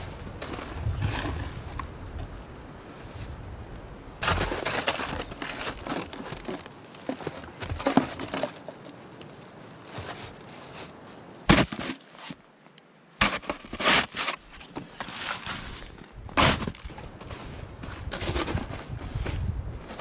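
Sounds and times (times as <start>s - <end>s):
shovel scraping through snow: 9.9s - 12.4s, 13.2s - 20.0s.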